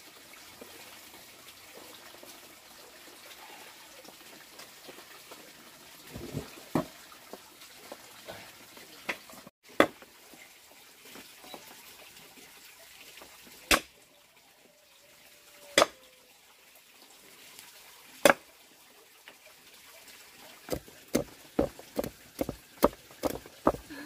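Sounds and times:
cleaver chopping on wooden block: 0:20.7 - 0:23.9.

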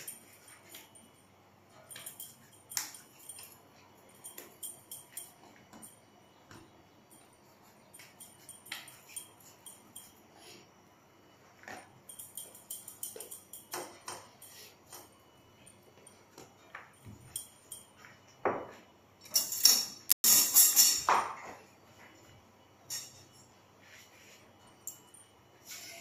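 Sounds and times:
metallic kitchen clinks and jingles: 0:00.0 - 0:06.2, 0:07.0 - 0:10.6, 0:11.6 - 0:18.4, 0:19.2 - 0:21.6, 0:22.8 - 0:23.6.

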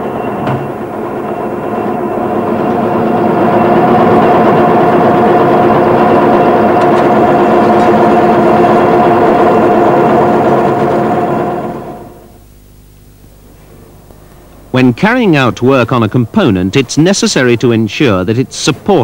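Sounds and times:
lathe machine whir: 0:00.0 - 0:12.4.

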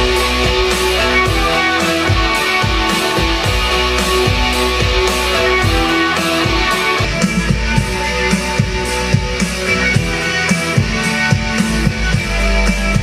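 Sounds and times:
rock music through a speaker: 0:00.0 - 0:13.0.

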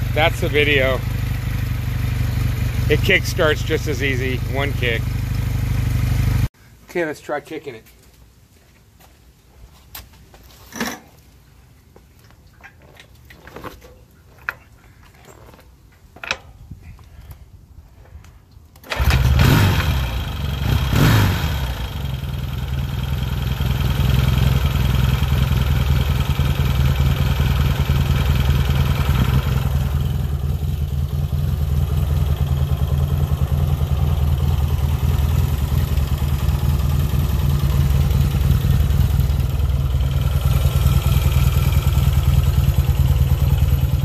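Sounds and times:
motorcycle engine revving and idling: 0:00.0 - 0:06.5, 0:18.9 - 0:44.0
motorcycle kick-start: 0:18.8 - 0:22.3.

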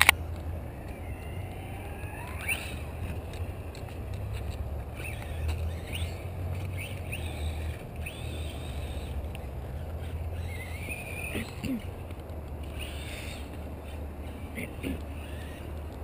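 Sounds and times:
electric motor whining: 0:12.6 - 0:16.0.

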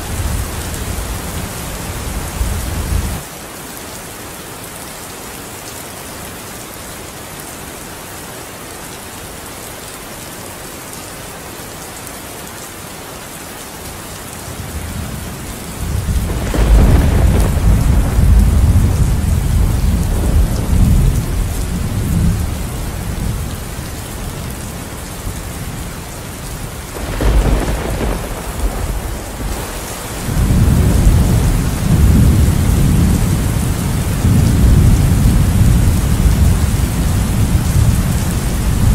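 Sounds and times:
steady rain: 0:00.0 - 0:38.9
thunder rumbling: 0:15.6 - 0:23.7, 0:26.8 - 0:38.9
sharp thunderclap: 0:16.0 - 0:21.3, 0:27.0 - 0:33.4.

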